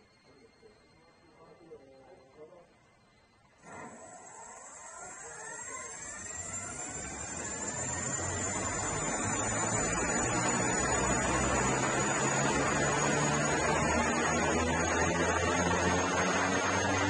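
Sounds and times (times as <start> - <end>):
propellers whining: 3.6 - 17.0.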